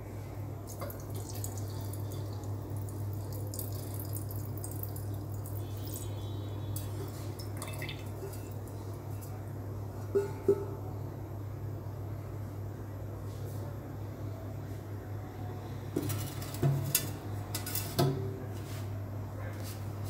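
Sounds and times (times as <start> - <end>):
steady low hum: 0.0 - 20.0
liquid trickling into a glass jar: 0.7 - 6.2, 6.8 - 8.9.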